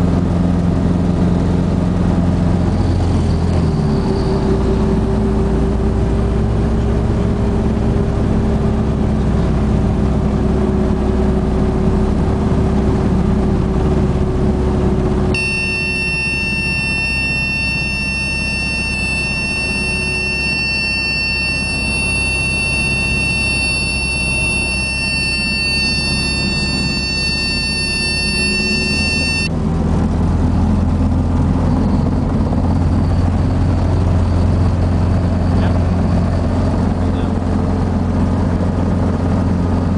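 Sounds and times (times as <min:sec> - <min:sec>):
helicopter engine and rotor drone: 0:00.0 - 0:39.9
high-pitched warning horn: 0:15.3 - 0:29.5.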